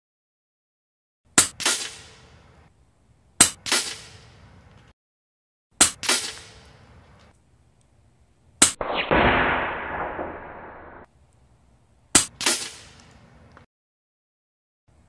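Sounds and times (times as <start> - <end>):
air rifle shots cracking: 8.6 - 11.1.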